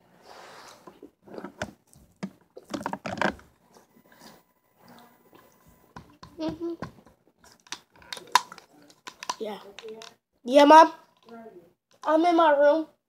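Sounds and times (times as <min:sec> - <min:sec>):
hard candy crunched and chewed: 0:07.4 - 0:10.1.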